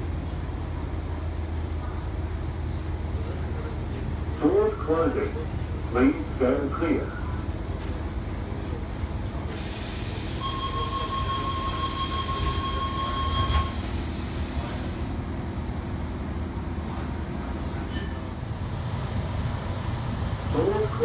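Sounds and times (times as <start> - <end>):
train low hum: 0.0 - 21.0
train doors shutting: 9.2 - 15.2
door warning beep: 10.4 - 13.8.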